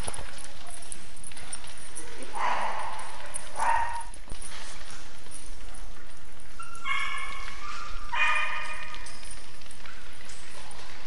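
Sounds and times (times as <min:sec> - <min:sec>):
dog barking: 0:02.3 - 0:04.1, 0:06.6 - 0:09.0
dog whining: 0:06.5 - 0:09.2.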